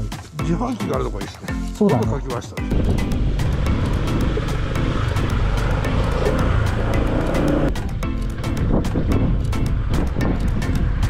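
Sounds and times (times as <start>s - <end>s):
background music with beat: 0.0s - 11.0s
motorcycle rumble: 2.7s - 11.0s.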